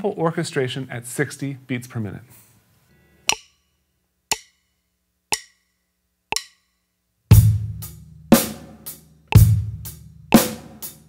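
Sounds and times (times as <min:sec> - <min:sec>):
count-in clicks: 0:03.3 - 0:03.6, 0:04.3 - 0:04.6, 0:05.3 - 0:05.7, 0:06.3 - 0:06.8, 0:09.3 - 0:09.5
drum kit rock groove: 0:07.3 - 0:11.0.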